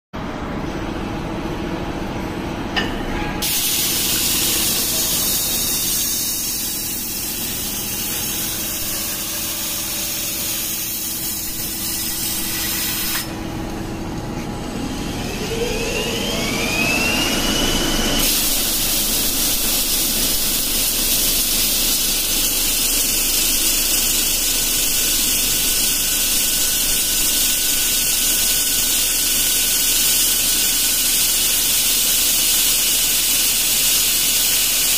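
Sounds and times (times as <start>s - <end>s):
rising machine whine: 0.2s - 27.7s
belt grinder hissing on steel: 3.4s - 13.4s, 17.4s - 34.9s.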